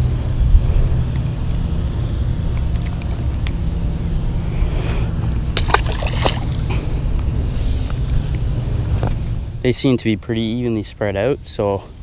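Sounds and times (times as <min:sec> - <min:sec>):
fish splashing in water: 0:05.6 - 0:06.7.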